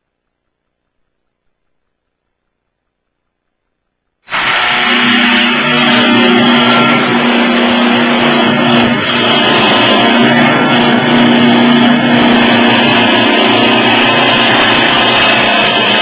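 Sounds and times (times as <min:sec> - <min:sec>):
lathe cutting wood: 0:04.3 - 0:16.0.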